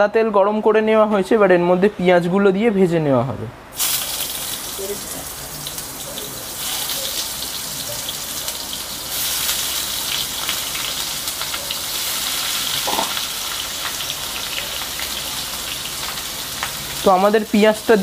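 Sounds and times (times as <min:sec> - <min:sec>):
onions sizzling in hot oil: 0:03.7 - 0:18.0.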